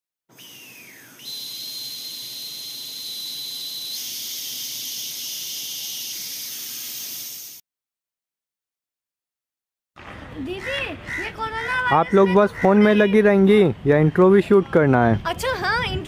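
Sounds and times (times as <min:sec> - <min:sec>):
falling whistle: 0:00.3 - 0:07.6
steady high whistling tone: 0:00.3 - 0:07.6
hiss: 0:00.4 - 0:07.6.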